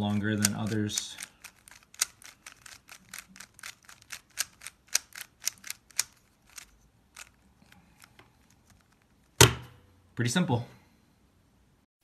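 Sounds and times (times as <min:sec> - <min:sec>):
plastic puzzle cube clicking: 0:00.4 - 0:09.1.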